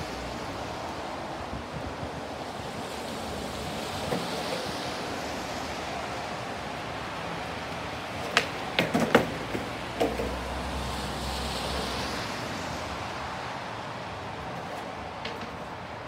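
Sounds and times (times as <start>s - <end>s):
skateboard wheels rolling: 0.0s - 16.0s
skateboard clattering on bricks: 8.1s - 10.4s, 14.6s - 15.9s.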